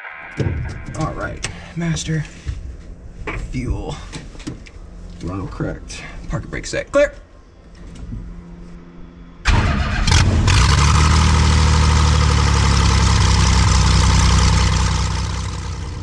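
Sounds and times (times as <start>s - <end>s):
aircraft engine starting and idling: 0.0s - 2.6s, 7.6s - 16.0s.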